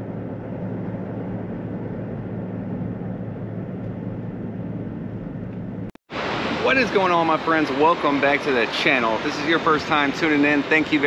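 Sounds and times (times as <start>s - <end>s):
car driving on road: 0.0s - 5.9s.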